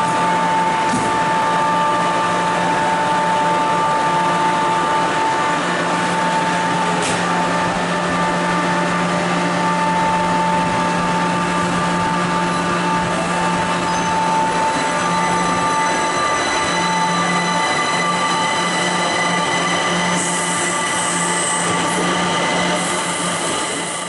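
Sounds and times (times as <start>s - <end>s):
train electrical hum and whine: 0.0s - 24.0s.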